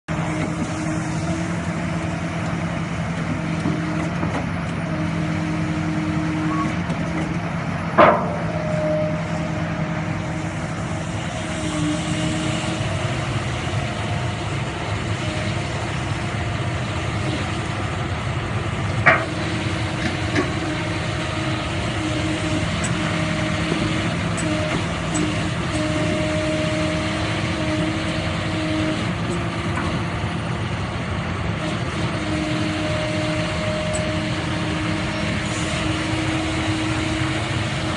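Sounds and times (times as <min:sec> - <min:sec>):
excavator diesel engine running: 0:00.0 - 0:37.9
steel on steel clanks: 0:08.0 - 0:08.6.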